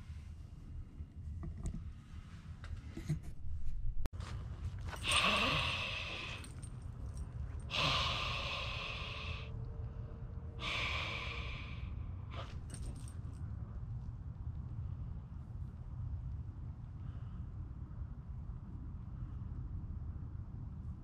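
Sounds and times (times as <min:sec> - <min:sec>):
steady low rumble: 0:00.0 - 0:21.0
heavy breathy exhalations: 0:04.9 - 0:06.7, 0:07.6 - 0:09.6, 0:10.5 - 0:13.1.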